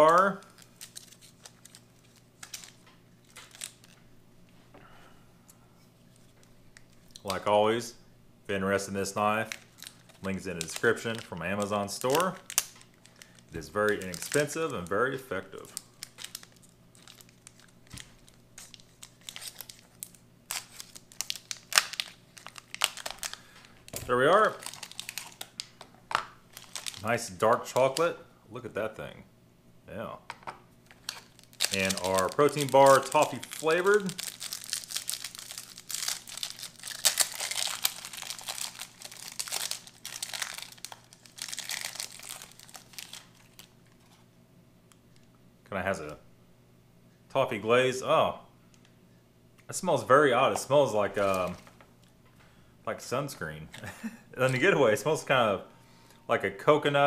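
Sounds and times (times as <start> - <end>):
wrapper crinkling: 0.0 - 4.0, 9.1 - 28.0, 30.8 - 44.2.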